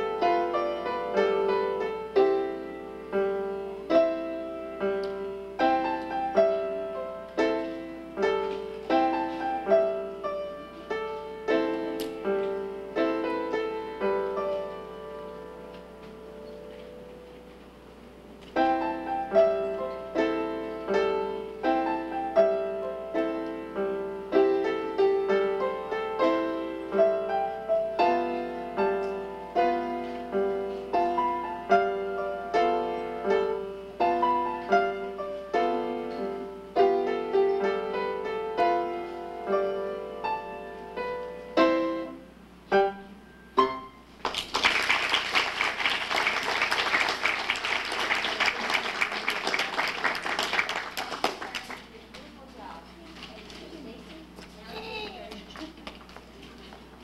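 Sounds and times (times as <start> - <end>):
grand piano playing: 0.0 - 51.0
audience applause: 44.2 - 51.9.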